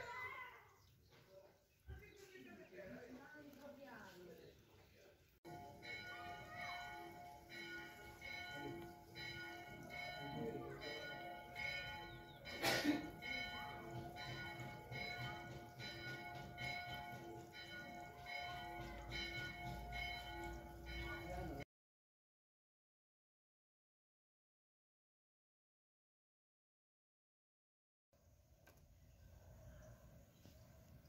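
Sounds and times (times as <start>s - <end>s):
church bells ringing: 5.5s - 21.6s.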